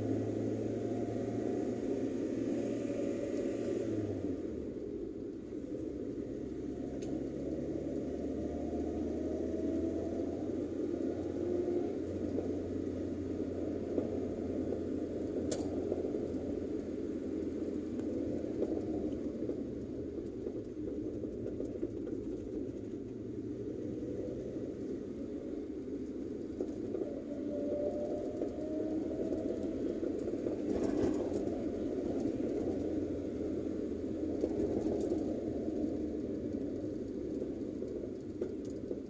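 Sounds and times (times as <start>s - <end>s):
engine and tyre rumble: 0.0s - 39.0s.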